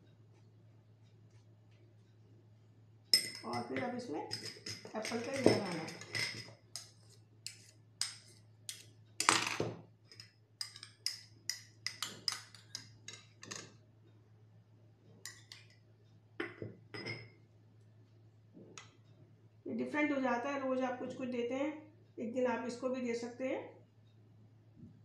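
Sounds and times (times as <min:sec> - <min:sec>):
metal spoon tapping a glass bowl: 0:03.2 - 0:08.8, 0:10.1 - 0:13.7, 0:15.2 - 0:15.7, 0:16.4 - 0:17.4.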